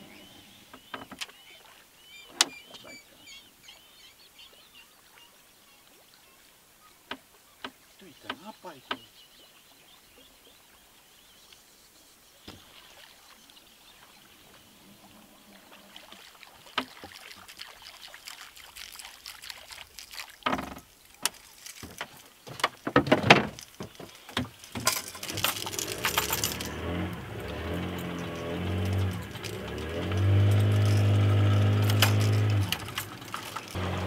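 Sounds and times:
fishing tackle clicking and knocking: 0:18.3 - 0:33.8.

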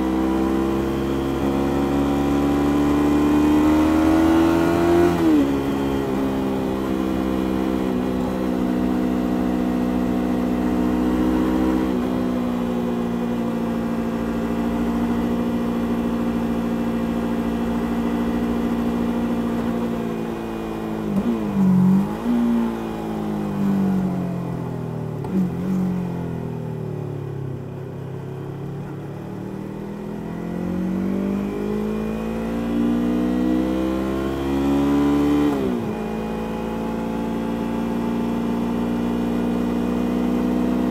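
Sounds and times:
motorcycle engine revving: 0:00.0 - 0:26.7, 0:29.4 - 0:40.9.

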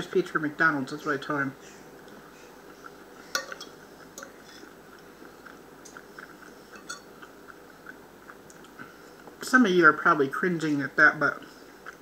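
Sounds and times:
person chewing food: 0:01.7 - 0:09.4, 0:11.4 - 0:12.0.

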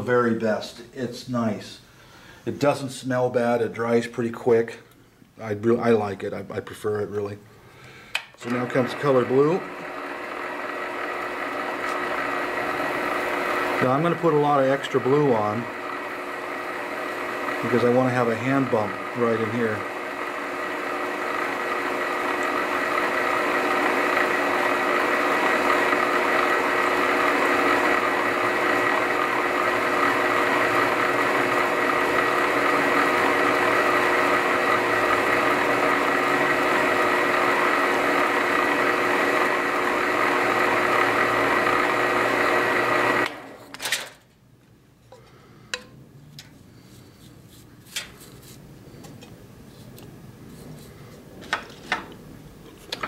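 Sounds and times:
lathe whining: 0:08.3 - 0:43.8.

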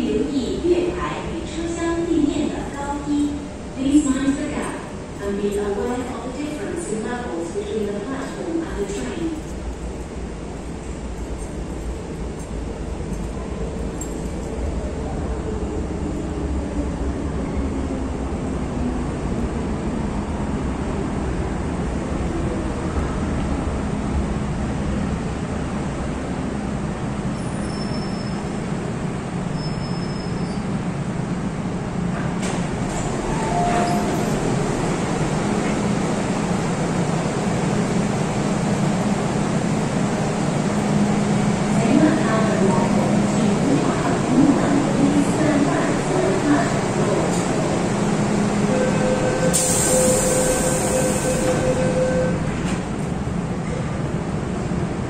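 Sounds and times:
metro train running past: 0:00.0 - 0:55.0.

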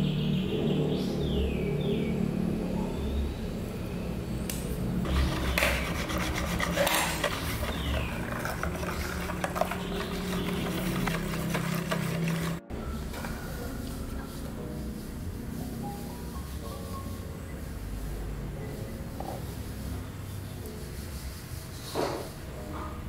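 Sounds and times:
whisk beating batter: 0:05.1 - 0:15.2.

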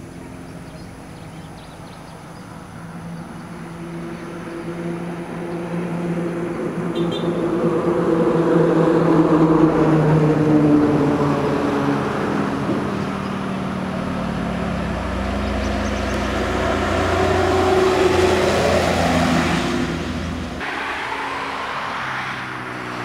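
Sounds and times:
bus diesel engine running: 0:12.8 - 0:21.9.

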